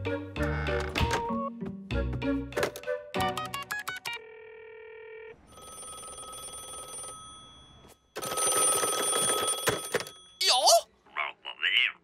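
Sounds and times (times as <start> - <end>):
telephone ringing: 3.5 - 10.6.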